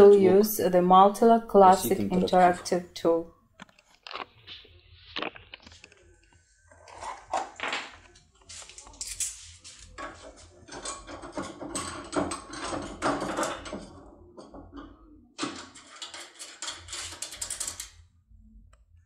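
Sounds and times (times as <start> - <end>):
metal lock clicking and scraping: 15.4 - 17.9.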